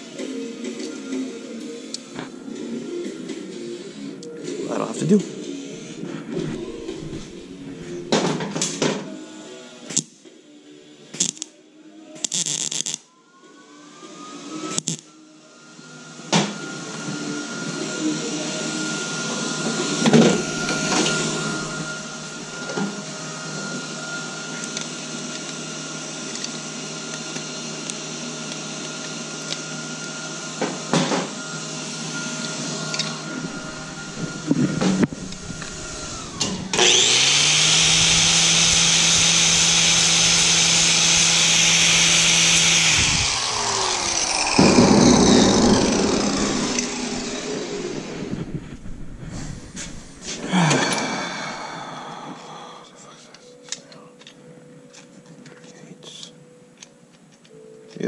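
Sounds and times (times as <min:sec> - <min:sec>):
steady shop hum: 0:05.4 - 0:08.6, 0:19.3 - 0:23.7, 0:31.4 - 0:53.6
miter saw motor whining: 0:05.9 - 0:08.4, 0:15.6 - 0:50.5
loud rough burst: 0:41.1 - 0:50.5.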